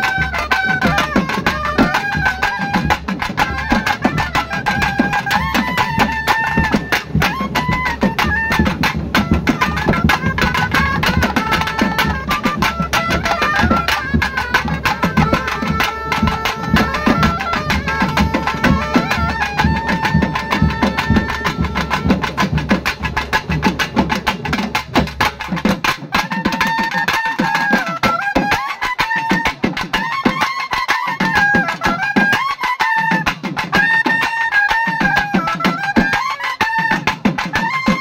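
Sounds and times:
sliding melody: 0.0s - 23.3s
fast drum strokes: 0.0s - 28.7s.

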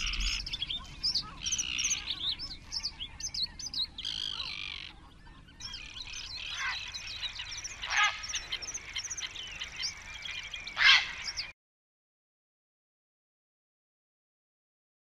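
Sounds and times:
harsh bird call: 0.0s - 11.5s
small birds twittering: 0.0s - 11.6s.

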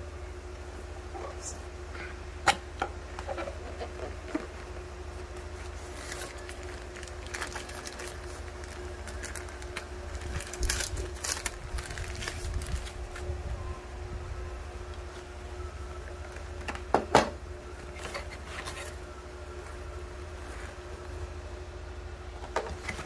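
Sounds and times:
faint steady hum: 0.0s - 23.0s
plastic bag crinkling: 5.4s - 13.3s.

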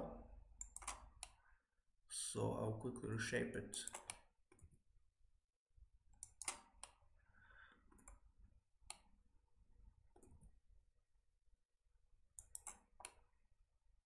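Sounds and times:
mouse and keyboard clicks: 0.6s - 1.4s, 3.8s - 4.8s, 6.1s - 7.0s, 7.9s - 8.2s, 12.4s - 13.2s.

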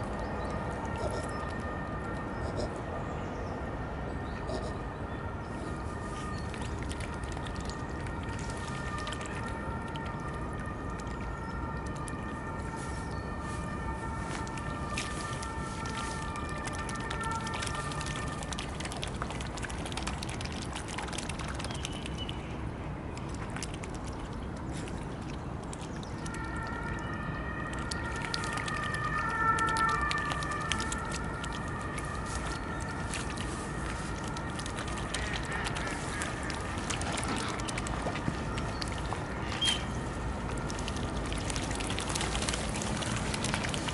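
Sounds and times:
birds dabbling with small splashes: 0.0s - 43.9s.

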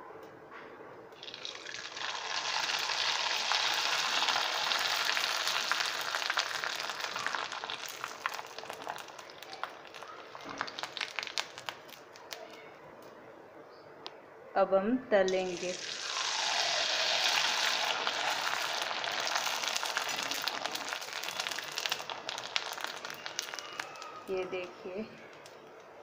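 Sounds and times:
food sizzling in hot oil: 1.2s - 12.0s, 15.3s - 24.3s
crackling pops: 1.2s - 13.2s, 15.3s - 25.9s.

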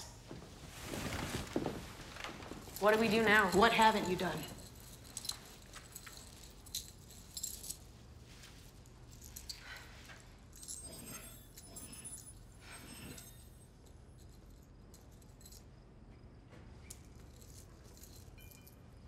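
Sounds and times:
low steady hum: 0.0s - 19.0s
small metal objects clinking: 2.6s - 7.9s, 10.5s - 15.7s, 16.9s - 19.0s.

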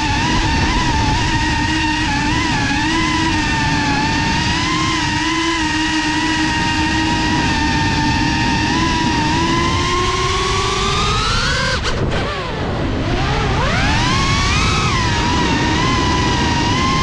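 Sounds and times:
drone motors whining: 0.0s - 17.0s
low wind rumble: 0.0s - 17.0s.

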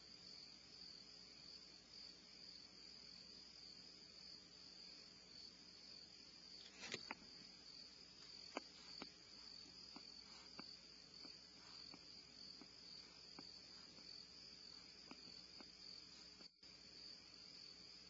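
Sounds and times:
insect chorus trilling: 0.0s - 18.0s.

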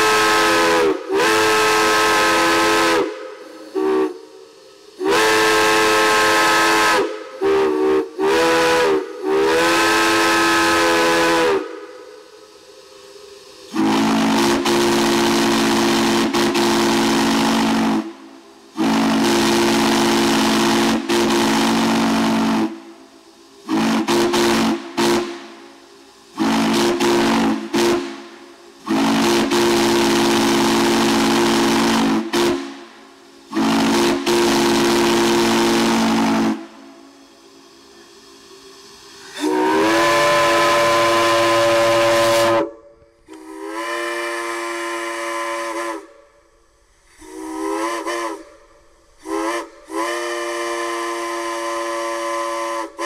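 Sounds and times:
deep chime steam whistle: 0.0s - 53.0s
high chime steam whistle: 0.0s - 53.0s
steam hissing: 0.0s - 53.0s.

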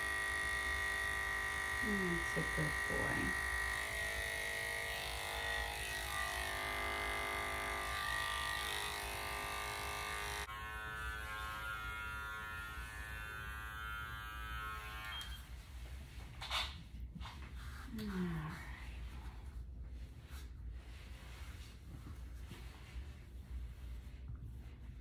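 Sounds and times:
electric clippers humming: 0.0s - 15.5s.

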